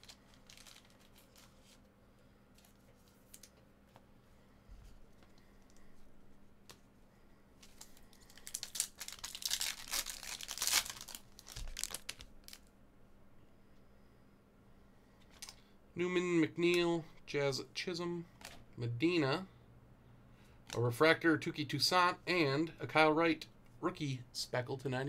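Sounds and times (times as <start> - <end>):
foil wrapper tearing and crinkling: 0.0 - 1.7, 7.7 - 12.7.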